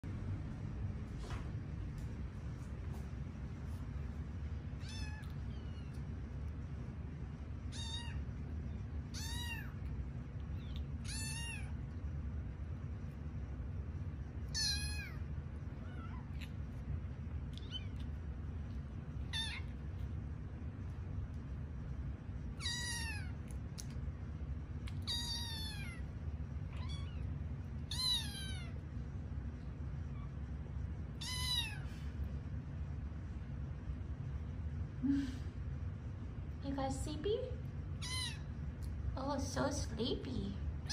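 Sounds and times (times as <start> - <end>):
kitten meowing: 4.8 - 6.0, 7.7 - 8.2, 9.1 - 9.9, 10.5 - 11.8, 14.5 - 15.2, 15.8 - 16.6, 17.5 - 18.1, 19.3 - 19.8, 22.6 - 23.5, 24.8 - 26.0, 26.7 - 27.3, 27.9 - 28.8, 31.2 - 31.9, 38.0 - 38.5.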